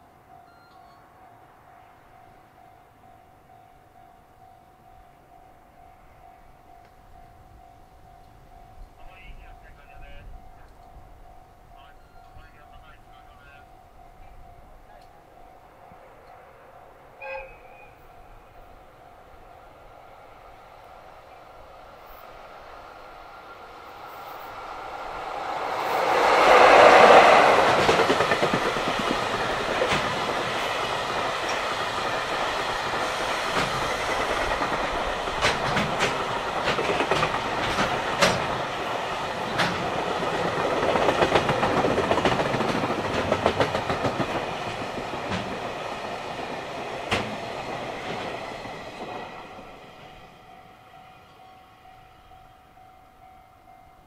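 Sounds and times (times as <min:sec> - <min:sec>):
electric locomotive passing: 0:00.0 - 0:54.0
level-crossing alarm ringing: 0:00.3 - 0:16.0
wheel clicks over rail joints: 0:33.6 - 0:38.7, 0:39.5 - 0:39.9.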